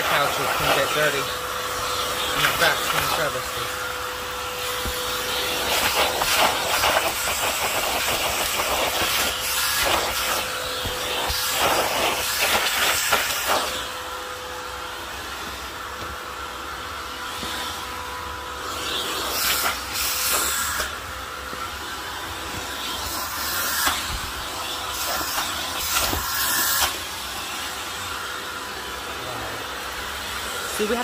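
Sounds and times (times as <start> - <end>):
vacuum cleaner whining: 0.0 - 31.0.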